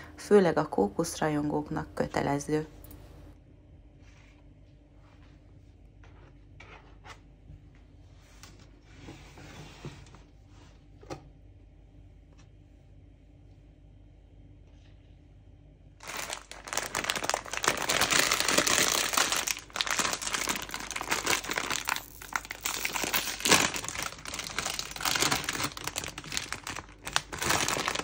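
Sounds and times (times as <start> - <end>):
paper bag crinkling: 16.0 - 28.0.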